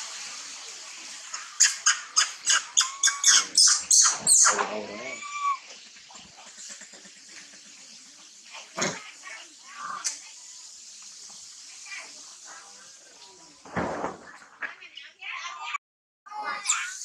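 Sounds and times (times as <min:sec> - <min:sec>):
baby monkey screaming: 0:01.3 - 0:05.7, 0:16.4 - 0:17.0.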